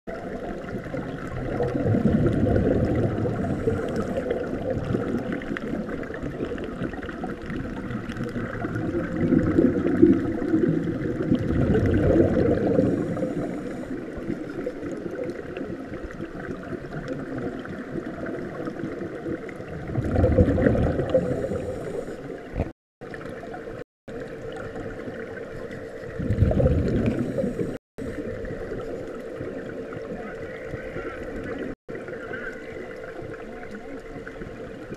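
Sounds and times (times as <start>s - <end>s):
faint hum: 0.1s - 6.6s, 8.3s - 16.5s, 18.4s - 34.9s
steady underwater rush: 0.1s - 34.9s
air bubbling underwater: 1.1s - 5.8s, 6.7s - 13.9s, 19.6s - 22.7s, 26.0s - 27.8s.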